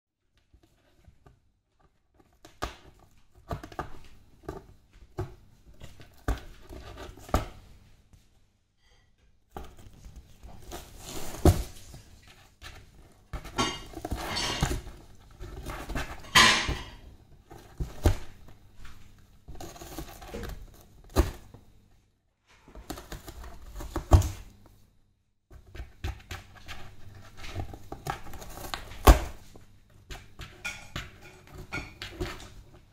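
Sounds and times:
cat clawing cardboard box: 9.5 - 18.6, 19.4 - 21.6, 22.7 - 24.5, 25.5 - 32.8
cardboard tearing and rustling: 9.6 - 16.8, 19.5 - 21.5, 22.7 - 24.5, 26.6 - 29.4.

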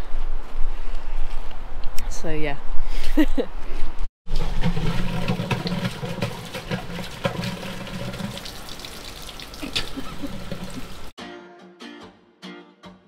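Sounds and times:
water pouring and splashing: 4.3 - 11.1.

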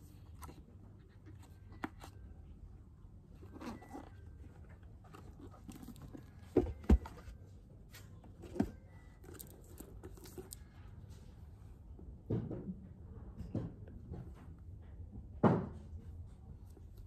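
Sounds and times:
book pages rustling: 0.0 - 2.3, 3.4 - 10.7
books knocking on shelf: 6.4 - 7.2.

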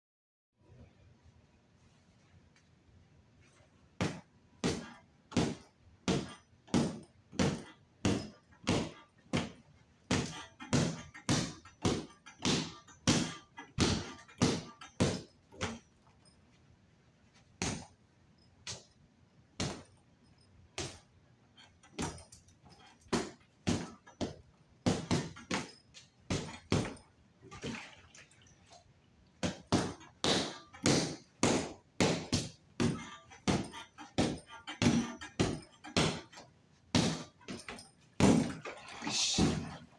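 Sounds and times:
punches thudding on punching bag: 4.0 - 15.9, 17.6 - 18.0, 19.6 - 20.0, 20.8 - 21.1, 21.8 - 27.8, 29.4 - 38.6, 39.4 - 39.9.

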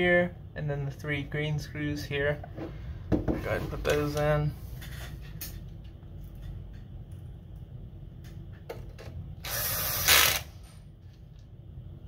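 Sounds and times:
electric screwdriver running: 9.4 - 10.5.

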